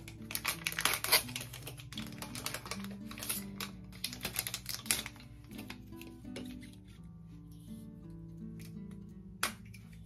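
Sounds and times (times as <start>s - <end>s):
plastic wrapper crinkling and tearing: 0.0s - 7.0s
background music with low notes: 0.0s - 10.0s.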